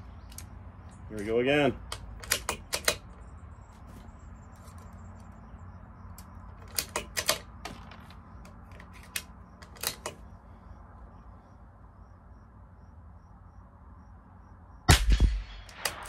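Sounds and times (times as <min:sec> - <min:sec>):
rifle bolt clicking: 0:01.2 - 0:03.2, 0:06.1 - 0:10.2, 0:15.7 - 0:16.0.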